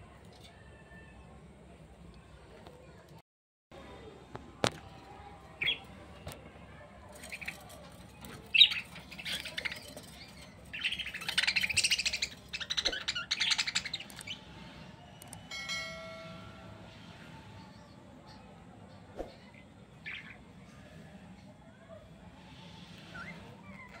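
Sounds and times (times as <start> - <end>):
budgerigars chirping and chattering: 7.2 - 14.8, 20.0 - 20.4.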